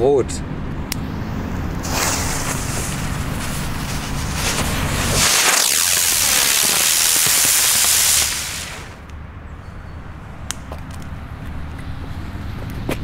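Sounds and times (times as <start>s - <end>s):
firework hissing: 1.8s - 9.0s.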